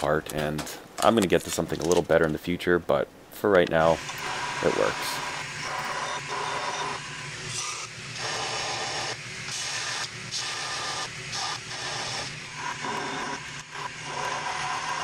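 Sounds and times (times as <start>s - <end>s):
grinder motor hum: 4.0s - 15.0s.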